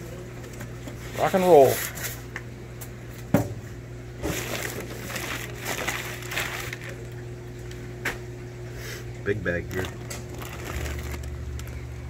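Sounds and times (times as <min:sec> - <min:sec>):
paper rustling and crackling: 0:04.2 - 0:07.2, 0:09.6 - 0:11.9.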